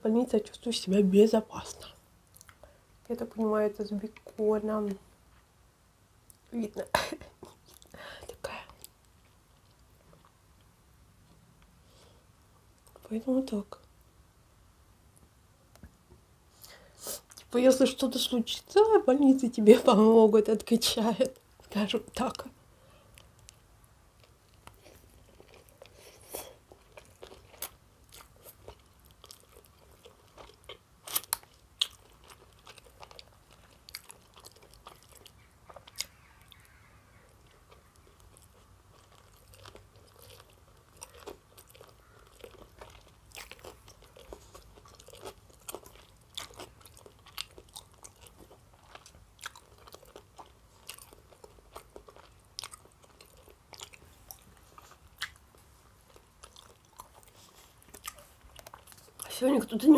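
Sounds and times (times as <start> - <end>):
chewing food: 1.6 - 2.8, 7.4 - 11.8, 20.4 - 59.9.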